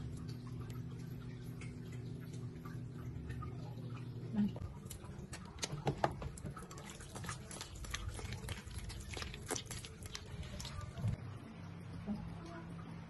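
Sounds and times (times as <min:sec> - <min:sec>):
scrubbing shrimp with salt: 0:06.6 - 0:11.1.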